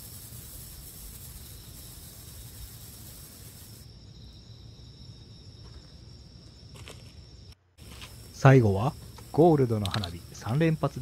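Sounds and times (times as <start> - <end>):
fountain firework hissing: 0.0 - 3.9.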